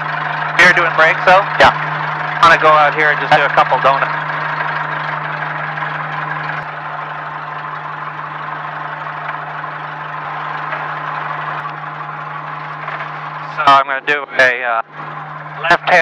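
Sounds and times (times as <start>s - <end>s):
light aircraft engine humming: 0.0s - 16.0s.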